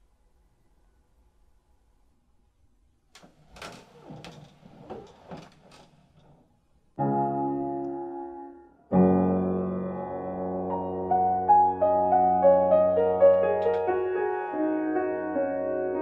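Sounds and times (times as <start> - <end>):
piano chords: 6.9 - 16.0
piano melody notes: 7.0 - 16.0.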